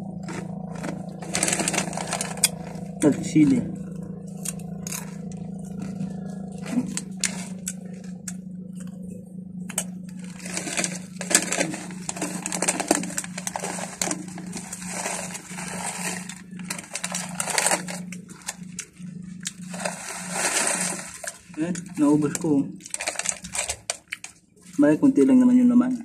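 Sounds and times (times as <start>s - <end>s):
chips being chewed: 0.0s - 2.9s, 4.4s - 9.0s, 9.7s - 24.4s
steady low hum: 0.0s - 26.0s
plastic chip bag crinkling: 0.2s - 2.8s, 10.1s - 24.4s.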